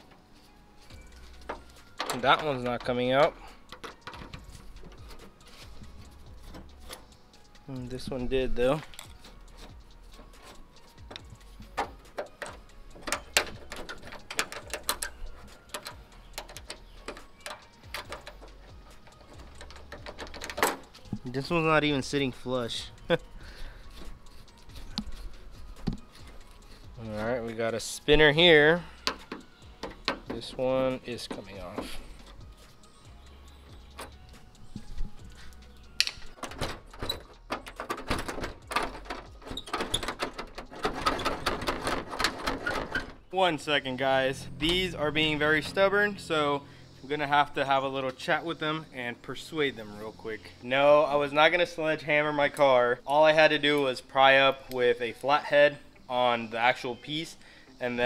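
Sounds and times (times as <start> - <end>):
metal clicks and rattles: 1.0 - 32.7, 33.4 - 46.7
screwdriver clicking on metal: 8.9 - 22.2.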